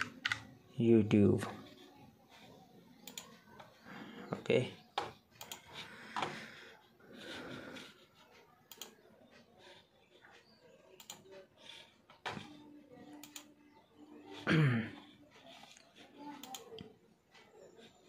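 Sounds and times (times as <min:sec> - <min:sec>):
keyboard and mouse clicks: 0:00.0 - 0:00.6, 0:03.0 - 0:03.7, 0:04.9 - 0:06.4, 0:08.6 - 0:09.4, 0:10.3 - 0:13.6, 0:15.6 - 0:17.0.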